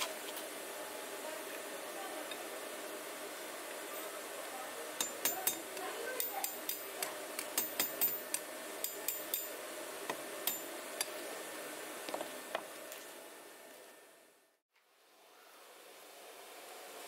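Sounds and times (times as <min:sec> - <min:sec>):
hammer striking iron rod on anvil: 0:05.0 - 0:09.6, 0:10.4 - 0:11.1.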